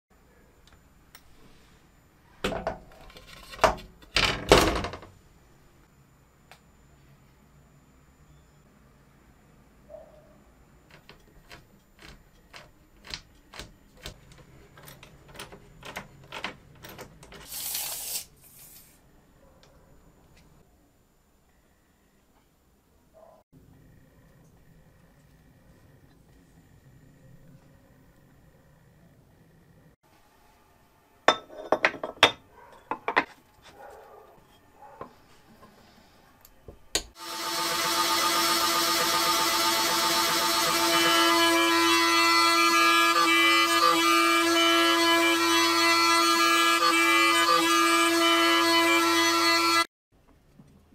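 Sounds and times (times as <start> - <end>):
loud steady machine sound: 37.2 - 49.8.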